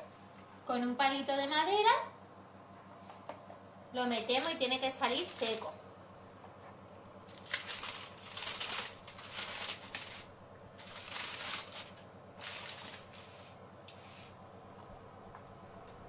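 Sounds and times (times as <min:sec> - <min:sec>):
aluminium foil crinkling: 0:04.1 - 0:05.8, 0:07.2 - 0:13.6.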